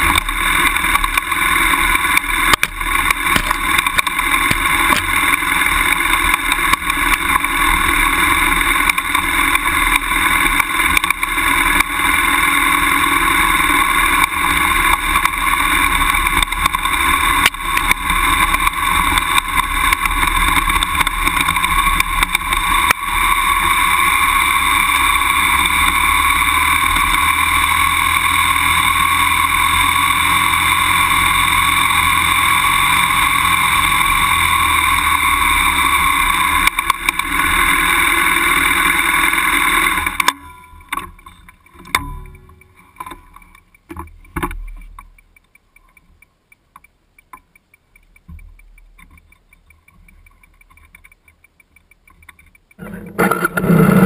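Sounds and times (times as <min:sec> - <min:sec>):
knocks and rattles over rough ground: 0:00.0 - 0:23.8
motorcycle engine running: 0:00.0 - 0:46.9, 0:47.6 - 0:54.0.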